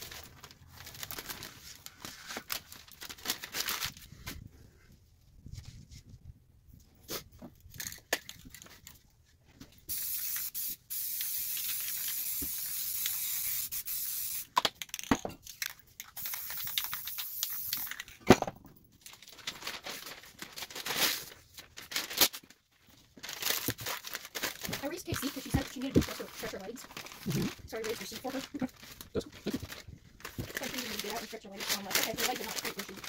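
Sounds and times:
spray paint can hissing: 9.9 - 14.6, 16.0 - 18.0
spray cans clicking: 10.0 - 18.2.

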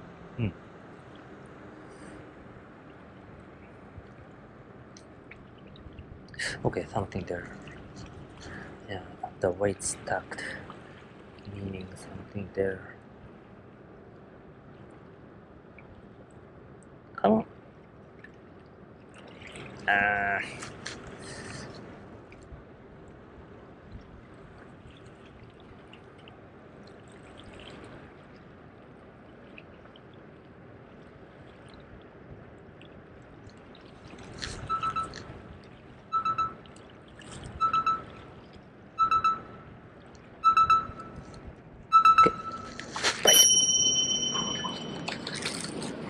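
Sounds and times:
short high beeps: 34.7 - 35.1, 36.1 - 36.6, 37.6 - 38.0, 39.0 - 39.6, 40.4 - 41.2, 41.9 - 45.2
short pitched sound: 43.3 - 45.2.

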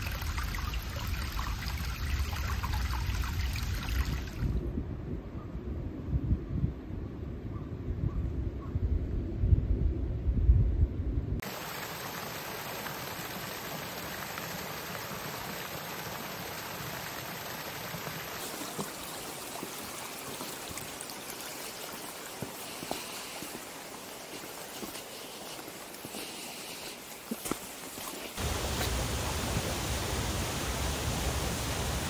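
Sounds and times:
low wind rumble: 0.1 - 11.4, 28.4 - 32.0
river running: 11.4 - 32.0.

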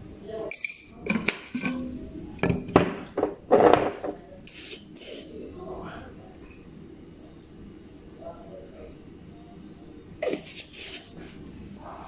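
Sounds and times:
glass jars and lids clinking: 0.5 - 1.8.

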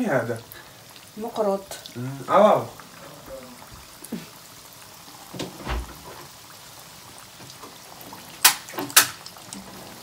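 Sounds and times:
pastries sizzling in hot oil: 0.0 - 10.0
sharp oil pops: 8.4 - 9.2.

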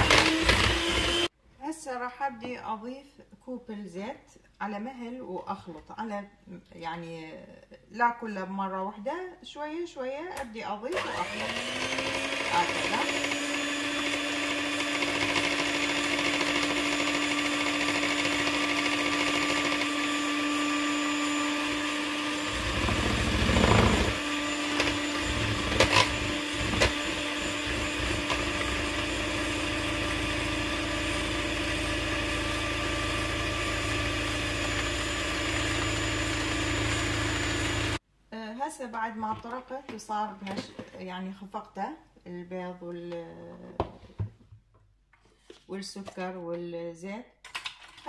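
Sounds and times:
stand mixer whining: 0.0 - 1.3, 11.0 - 38.0.

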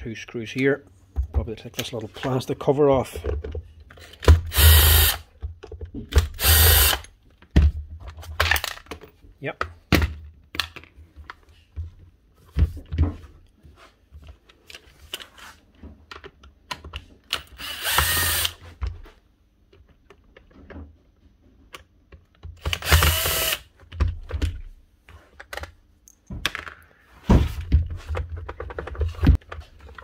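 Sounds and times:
cordless drill running: 4.5 - 5.2, 6.4 - 7.0, 17.6 - 18.6, 22.6 - 23.6
clicks and knocks of parts: 5.3 - 11.5, 14.2 - 18.2, 19.6 - 26.9.

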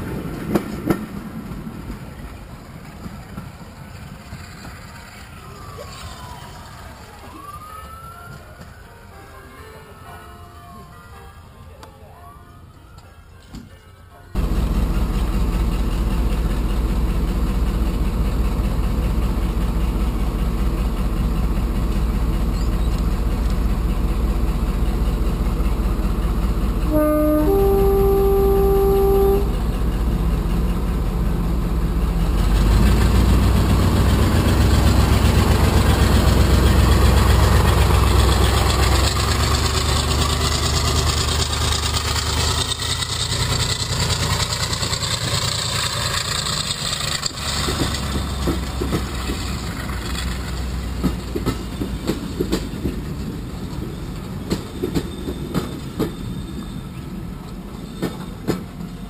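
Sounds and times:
diesel locomotive engine: 0.0 - 59.0
two-tone locomotive horn: 26.8 - 29.8.

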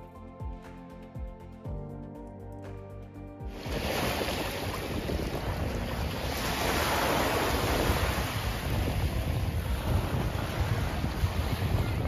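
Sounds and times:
sea waves washing onto shore: 3.5 - 12.0
wind buffeting microphone: 3.5 - 12.0.

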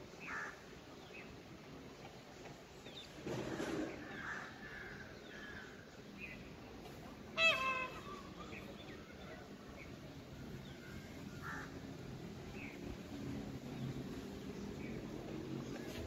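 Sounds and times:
peafowl call: 7.4 - 8.8.

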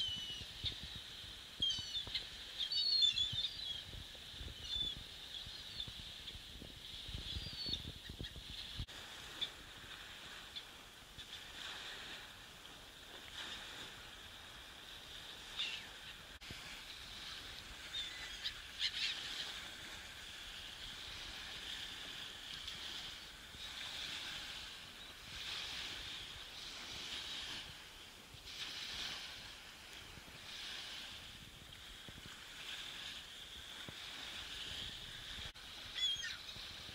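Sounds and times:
gulls calling: 1.5 - 3.8, 17.4 - 19.8, 35.8 - 36.7.

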